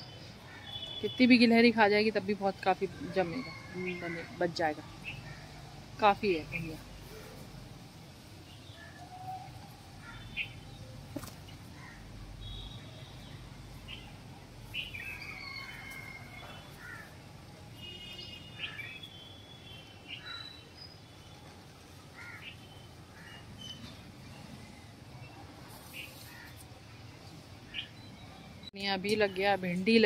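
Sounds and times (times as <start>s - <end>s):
low background noise: 0.0s - 30.0s
small birds chirping: 4.9s - 6.9s.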